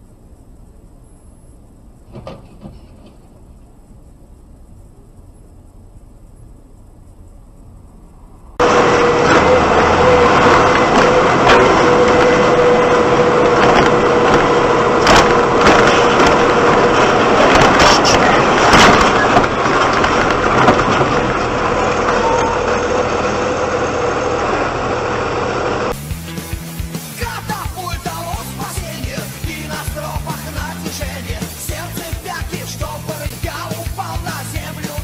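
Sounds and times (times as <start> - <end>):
thin steady whine: 0.0 - 2.2, 2.9 - 19.9
vehicle engine and road noise: 0.0 - 35.0.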